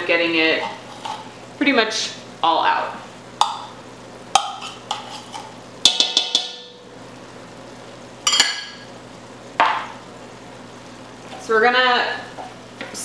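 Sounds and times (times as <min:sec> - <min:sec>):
knife tapping on metal: 0:05.9 - 0:06.8.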